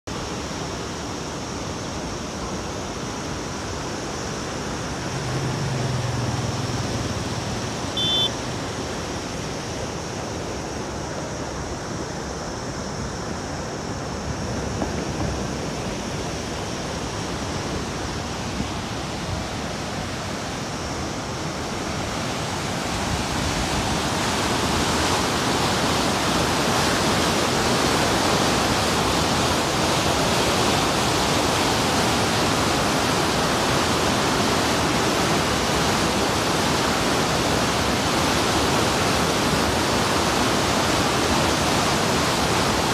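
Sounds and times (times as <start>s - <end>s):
water rushing: 0.1s - 42.9s
high chirp: 8.0s - 8.4s.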